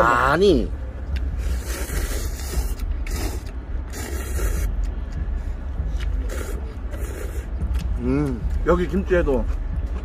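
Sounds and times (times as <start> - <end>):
steady low rumble: 0.0 - 10.0
noodles being slurped: 1.4 - 4.9.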